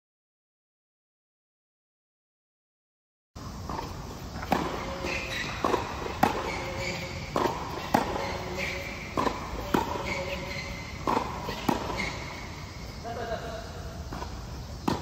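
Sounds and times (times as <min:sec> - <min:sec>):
tennis ball hit and bouncing: 0:03.6 - 0:13.1, 0:14.0 - 0:15.0.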